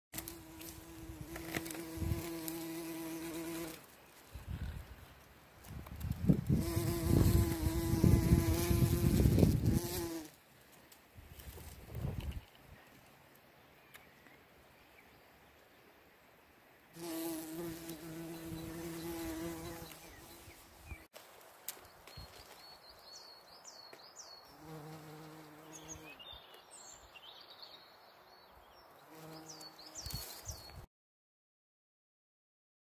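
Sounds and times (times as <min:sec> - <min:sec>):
bumblebee buzzing in flight: 0:00.2 - 0:03.8, 0:06.5 - 0:10.3, 0:17.0 - 0:20.9, 0:24.6 - 0:26.2, 0:29.1 - 0:30.2.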